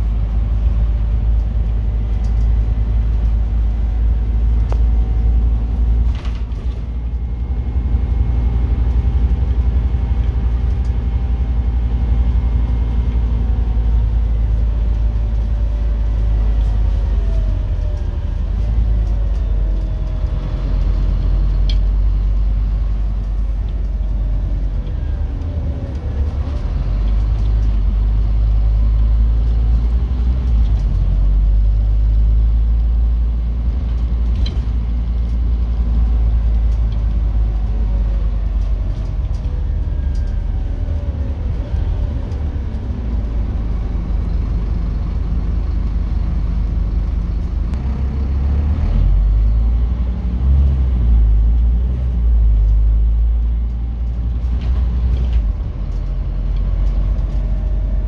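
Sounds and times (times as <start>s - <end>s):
bus engine rumble: 0.0s - 58.0s
road noise: 0.0s - 58.0s.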